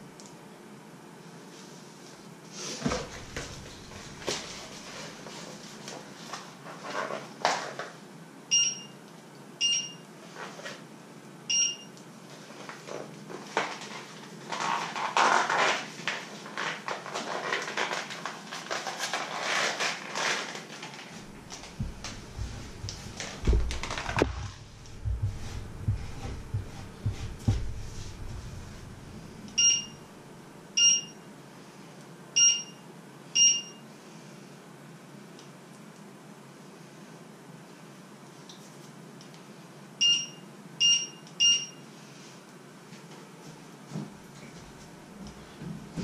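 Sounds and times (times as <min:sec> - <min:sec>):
kitchen knocks and clatter: 0:21.3 - 0:29.0.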